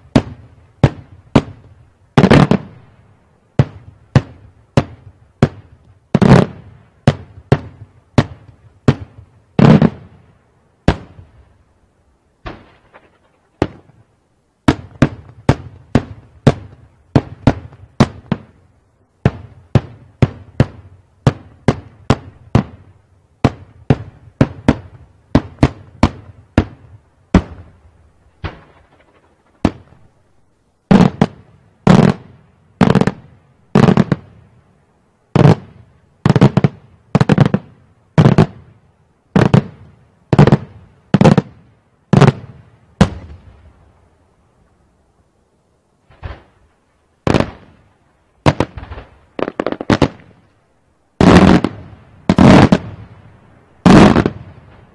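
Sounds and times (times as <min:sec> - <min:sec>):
fireworks shells bursting: 0:12.4 - 0:14.0, 0:28.3 - 0:30.1.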